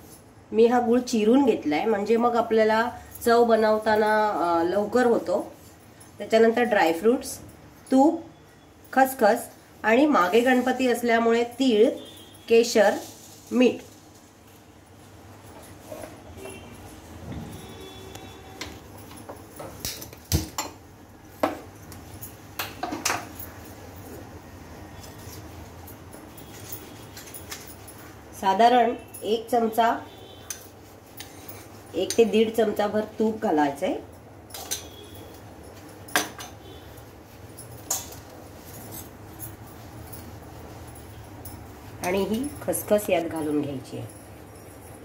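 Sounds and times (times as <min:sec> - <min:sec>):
kitchen dishes clinking: 0:21.4 - 0:23.7, 0:34.4 - 0:36.7, 0:37.7 - 0:39.6
metal pan and utensils clattering: 0:22.6 - 0:23.4, 0:34.5 - 0:35.2, 0:37.8 - 0:38.3.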